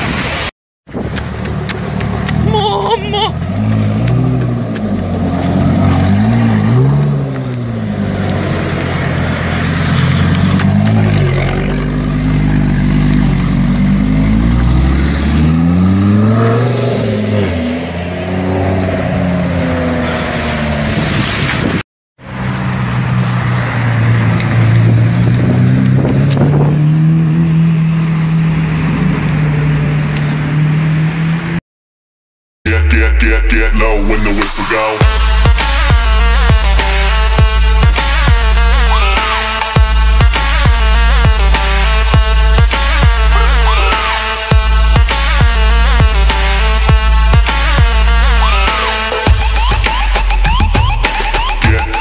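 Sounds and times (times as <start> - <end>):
sports car engine revving: 3.4 - 21.0, 33.2 - 52.0
sports car pulling away: 3.4 - 21.6, 22.4 - 31.5.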